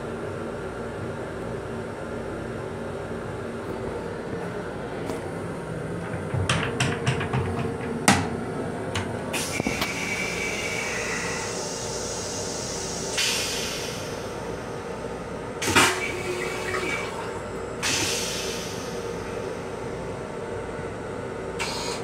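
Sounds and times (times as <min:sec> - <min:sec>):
train running hum: 0:00.0 - 0:22.0
toilet mechanism clicks: 0:06.0 - 0:09.9
toilet flush whine: 0:09.4 - 0:14.3, 0:15.6 - 0:19.0.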